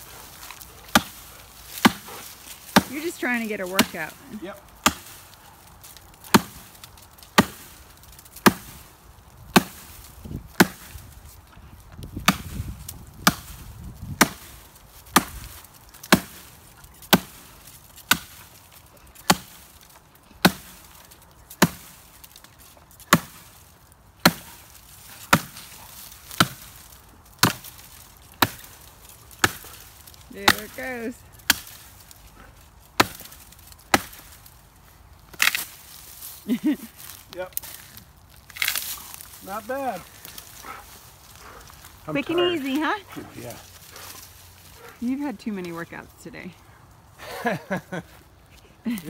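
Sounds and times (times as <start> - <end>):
axe chopping tree trunk: 0.2 - 34.6, 35.2 - 36.2, 37.0 - 39.4.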